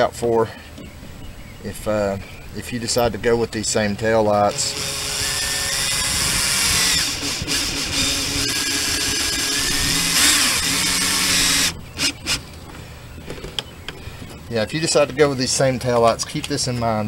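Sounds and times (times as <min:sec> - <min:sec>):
cordless drill driving screw: 0:04.5 - 0:12.4.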